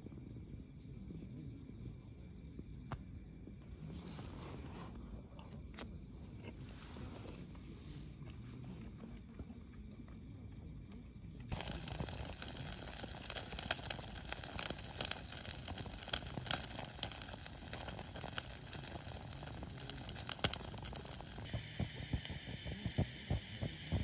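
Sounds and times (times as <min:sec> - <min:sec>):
dense crackling and crinkling: 0:11.4 - 0:24.0.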